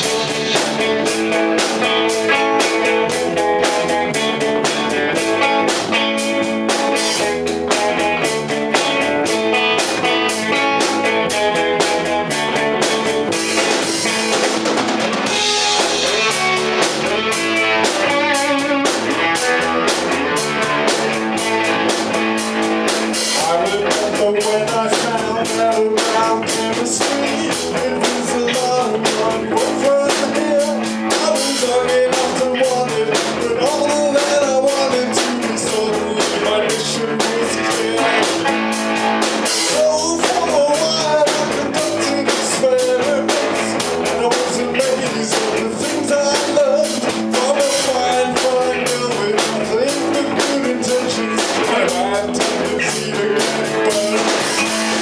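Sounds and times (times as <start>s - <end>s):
drum kit: 0.0s - 55.0s
electric bass: 0.0s - 55.0s
electric guitar: 0.0s - 55.0s.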